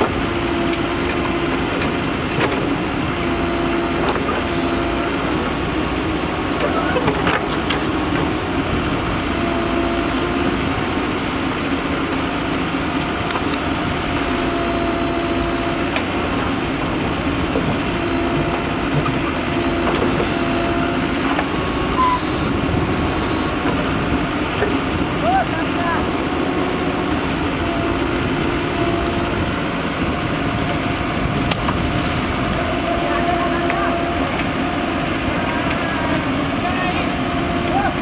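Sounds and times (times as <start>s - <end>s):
backhoe diesel engine under load: 0.0s - 38.0s
steady hydraulic tone: 21.9s - 23.8s.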